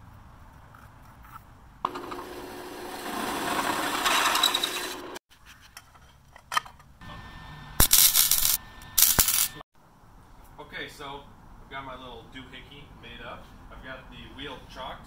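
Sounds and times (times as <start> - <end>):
drill press boring metal: 1.9 - 5.2
arc welding crackling hiss: 7.8 - 9.6.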